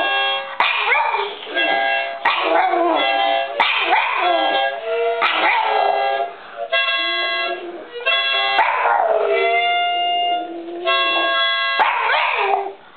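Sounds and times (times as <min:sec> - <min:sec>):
toy harmonica chords: 0:00.0 - 0:00.6, 0:01.2 - 0:12.1
dog howling: 0:03.8 - 0:06.0, 0:08.6 - 0:09.8, 0:12.0 - 0:12.8.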